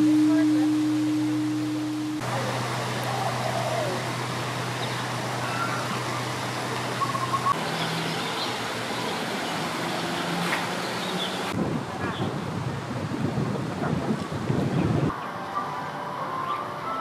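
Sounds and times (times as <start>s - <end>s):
low hum: 0.0s - 7.5s.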